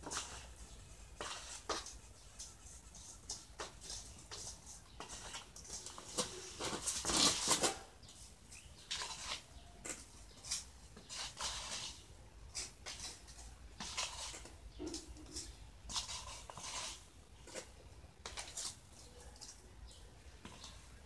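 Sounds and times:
wet mortar scraping: 8.6s - 19.4s.

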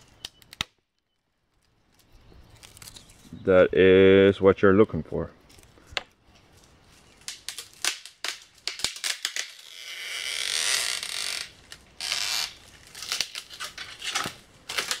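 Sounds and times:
dead wood cracking and snapping: 0.0s - 3.2s, 7.2s - 9.7s, 11.4s - 15.0s
branches scraping and twigs rustling: 0.0s - 3.4s, 5.4s - 15.0s.

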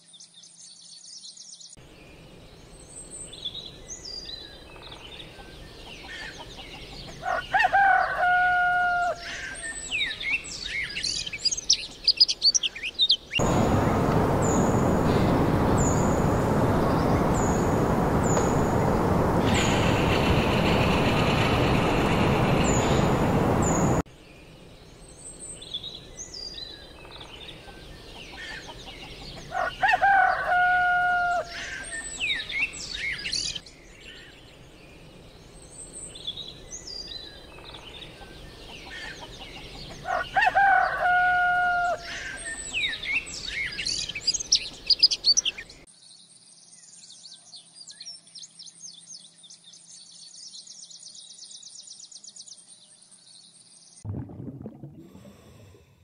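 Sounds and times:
small birds chirping: 0.0s - 7.5s, 9.2s - 29.6s, 31.6s - 40.1s, 42.1s - 54.0s
rooster crowing: 7.2s - 9.4s, 29.5s - 31.7s, 40.0s - 42.2s.

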